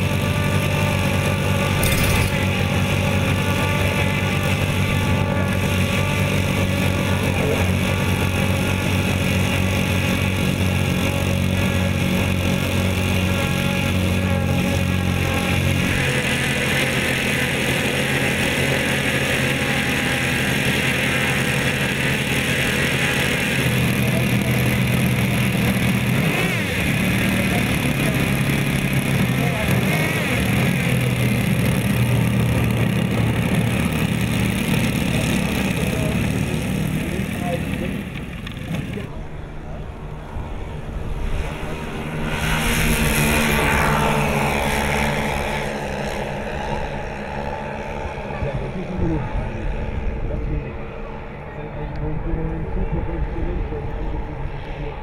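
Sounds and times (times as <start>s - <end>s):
model piston engines idling: 0.0s - 40.2s.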